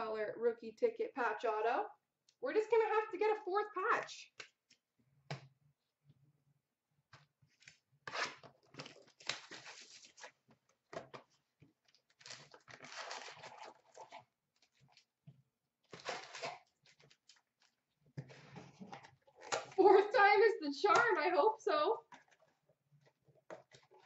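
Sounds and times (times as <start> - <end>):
wrapper tearing and rustling: 8.1 - 10.4, 12.0 - 14.2, 15.9 - 17.8.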